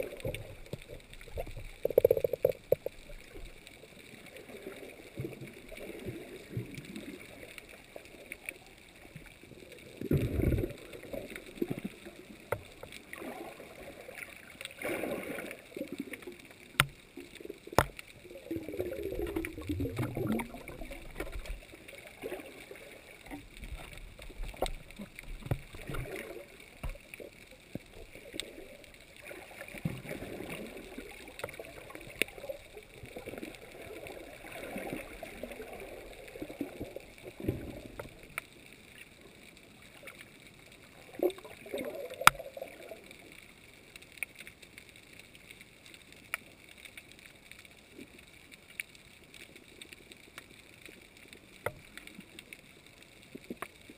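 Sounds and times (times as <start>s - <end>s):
underwater sea water gurgling: 0.0s - 53.9s.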